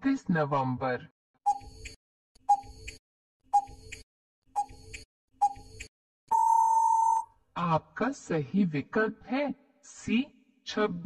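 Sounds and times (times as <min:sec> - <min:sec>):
clock ticking: 0:04.6 - 0:05.9
steady beep: 0:06.3 - 0:07.2.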